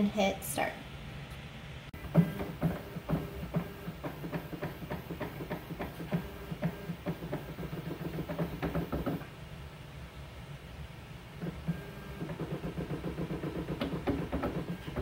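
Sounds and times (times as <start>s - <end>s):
motor hum: 2.0s - 9.3s, 11.4s - 15.0s
rapid clicks: 2.0s - 9.3s, 11.4s - 15.0s.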